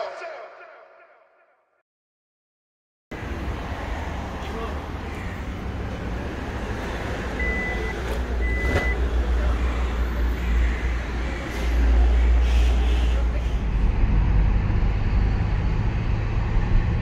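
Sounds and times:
low rumble of engines: 3.1s - 17.0s
short electronic beeps: 7.4s - 9.0s.

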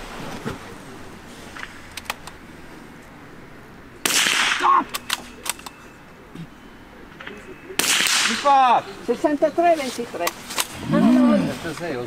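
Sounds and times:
rifle shots: 4.0s - 5.2s, 7.8s - 8.5s.

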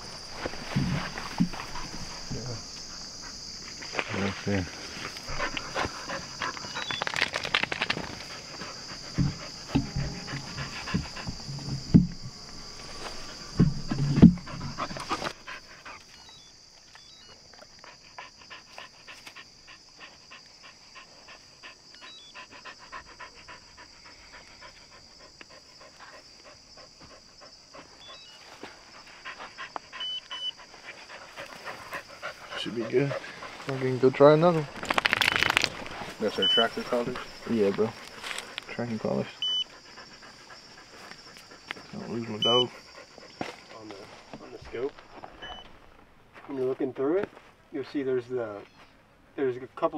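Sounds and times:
rustling: 0.0s - 16.4s, 28.2s - 38.8s
dog panting: 5.1s - 7.0s, 8.0s - 12.2s, 13.2s - 16.3s, 17.7s - 34.0s, 35.9s - 43.8s
loud knocks: 9.1s - 12.4s.

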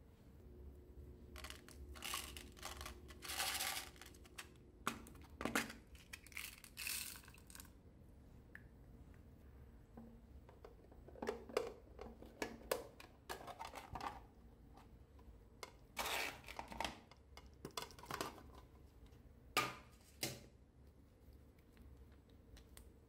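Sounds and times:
plastic rustle: 1.4s - 4.5s.

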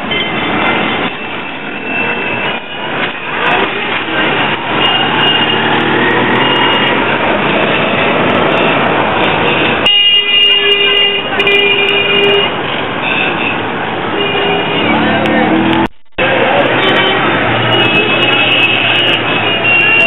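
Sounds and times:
busy street traffic: 0.0s - 20.0s
vehicle horn blasts: 16.8s - 20.0s.

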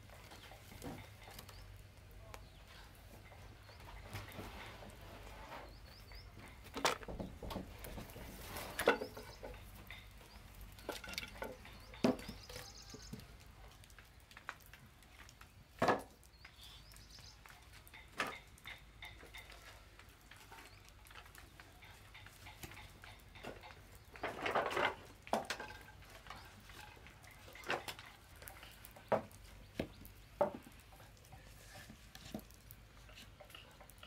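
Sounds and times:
wooden boards knocking: 6.6s - 8.2s.

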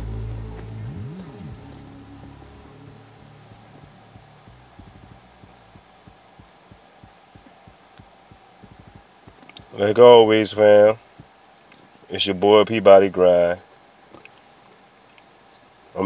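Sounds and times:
music track: 0.0s - 5.4s
crickets chirping: 0.0s - 16.0s.

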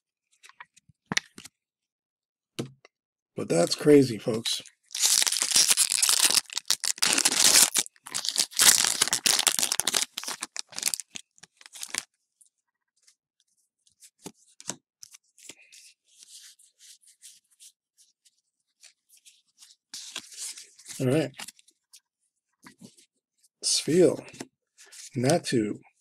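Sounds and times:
foil wrapper tearing and crinkling: 4.9s - 12.0s.

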